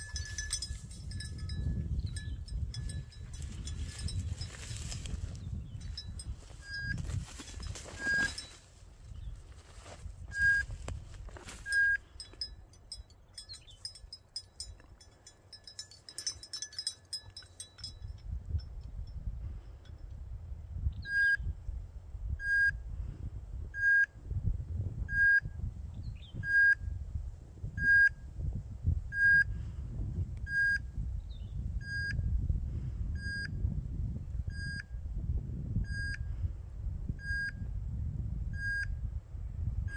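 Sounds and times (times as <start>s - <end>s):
dog collar beeping: 0.0s - 8.6s, 11.4s - 18.3s
wind rumble on microphone: 0.0s - 39.9s.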